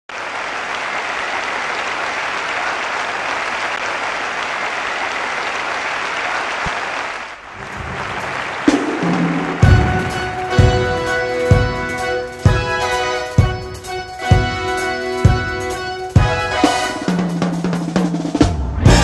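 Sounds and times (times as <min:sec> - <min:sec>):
audience applauding: 0:00.1 - 0:11.6
band playing low notes: 0:07.5 - 0:19.0
sharp drum hit: 0:07.6 - 0:11.8.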